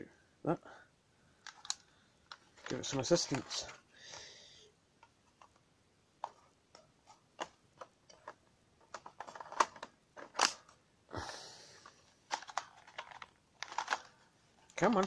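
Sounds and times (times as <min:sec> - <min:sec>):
plastic toy gun clicks: 0:10.4 - 0:10.6.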